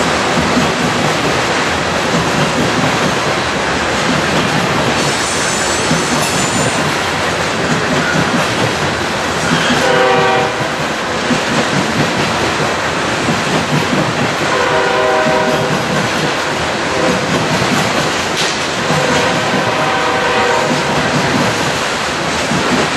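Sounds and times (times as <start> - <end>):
steel wheels rumbling on rails: 0.0 - 22.9
train horn: 9.5 - 10.8, 14.5 - 15.9, 16.9 - 17.3, 18.8 - 21.1.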